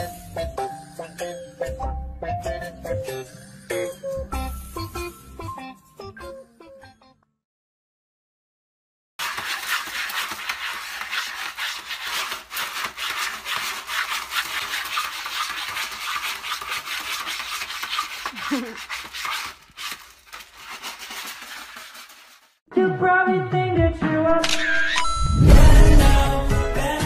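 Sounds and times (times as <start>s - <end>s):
cat scratching in litter tray: 9.2s - 22.6s.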